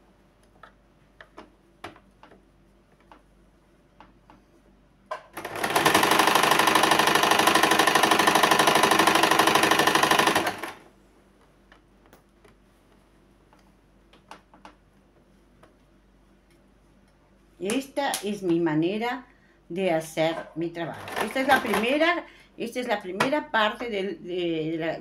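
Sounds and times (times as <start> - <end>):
sewing machine stitching: 5.4 - 10.8, 20.9 - 22.0.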